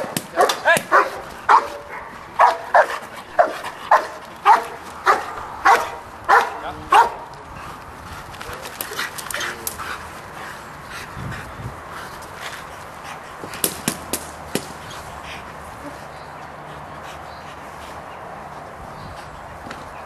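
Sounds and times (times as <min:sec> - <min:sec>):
dog barking: 0:00.0 - 0:07.2.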